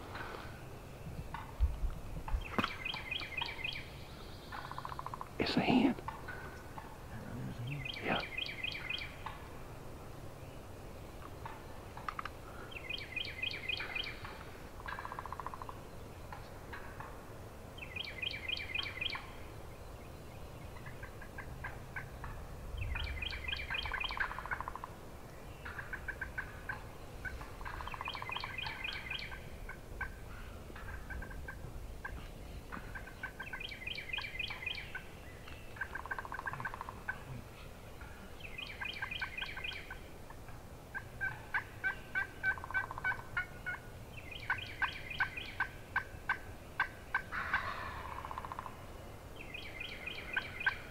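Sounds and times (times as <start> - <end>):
short low bird calls: 2.3 - 9.5, 25.6 - 40.0.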